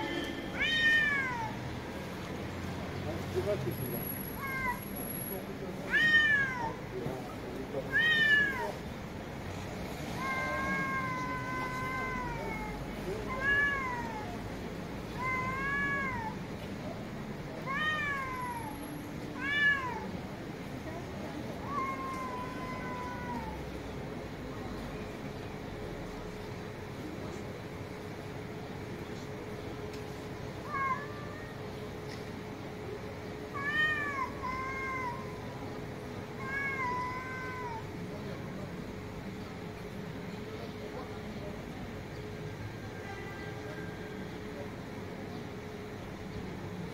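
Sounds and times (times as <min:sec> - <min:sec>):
cats yowling: 0:00.6 - 0:01.6, 0:04.2 - 0:05.1, 0:05.9 - 0:06.9, 0:07.8 - 0:08.8, 0:10.1 - 0:14.5, 0:15.1 - 0:16.4, 0:17.6 - 0:20.1, 0:21.6 - 0:23.8, 0:30.6 - 0:31.7, 0:33.5 - 0:35.6, 0:36.3 - 0:38.0.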